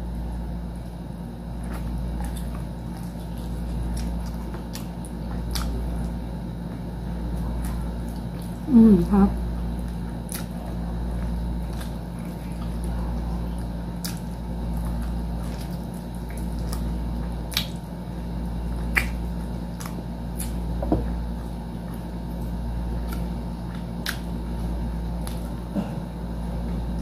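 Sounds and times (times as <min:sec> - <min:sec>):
steady low hum: 0:00.0 - 0:27.0
wet chewing: 0:00.8 - 0:08.7, 0:09.6 - 0:26.0
mouth clicks and smacks: 0:17.5 - 0:17.8, 0:18.8 - 0:20.6.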